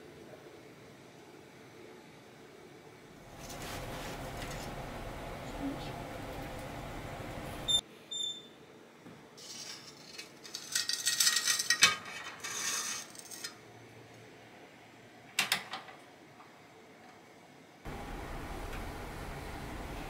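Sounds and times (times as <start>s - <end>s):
metal bowl scraping and clinking: 9.4s - 13.6s.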